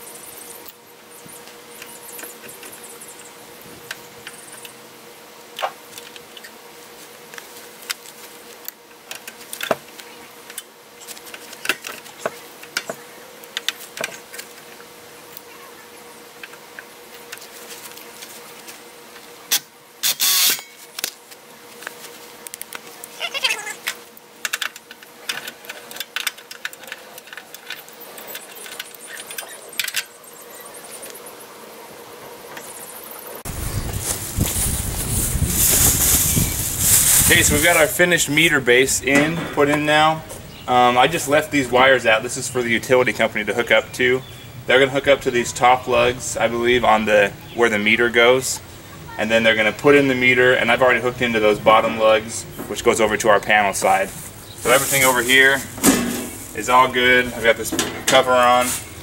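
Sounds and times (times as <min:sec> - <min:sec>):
faint steady hum: 0:00.0 - 0:59.0
rustling scrape: 0:33.5 - 0:38.0, 0:53.8 - 0:59.0.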